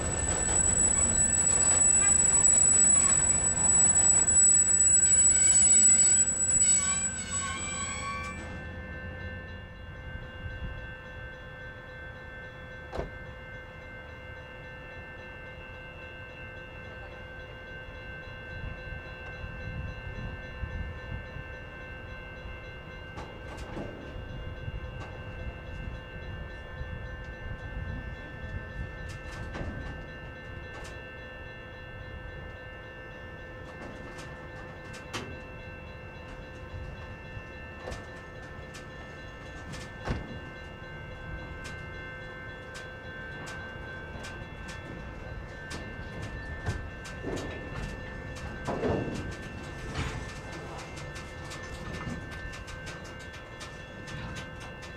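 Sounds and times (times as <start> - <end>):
train wheels squealing: 0.0 - 8.8
freight train rumbling: 0.0 - 54.9.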